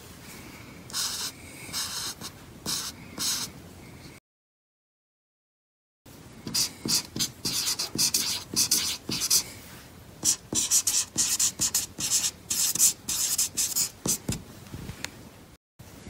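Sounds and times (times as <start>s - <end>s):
marker squeaking on paper: 1.0s - 3.5s, 6.5s - 9.4s, 10.2s - 14.4s.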